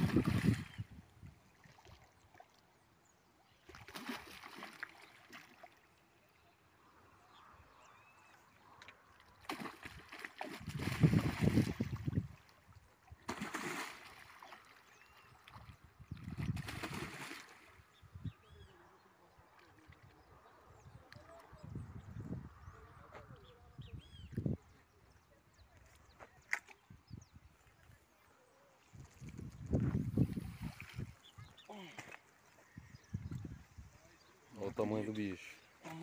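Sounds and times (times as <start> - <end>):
fish splashing in water: 3.6 - 5.8, 9.4 - 12.3, 13.2 - 17.7.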